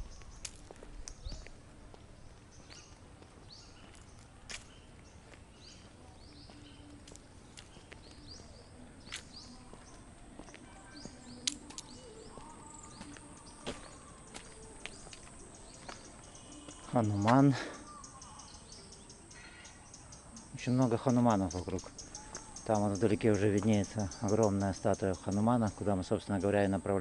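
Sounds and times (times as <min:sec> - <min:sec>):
low outdoor background: 0:00.0 - 0:27.0
small birds chirping: 0:00.0 - 0:27.0.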